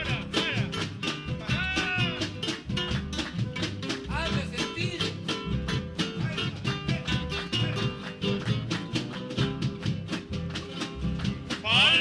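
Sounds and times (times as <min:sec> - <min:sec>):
strummed guitar music: 0:00.0 - 0:12.0.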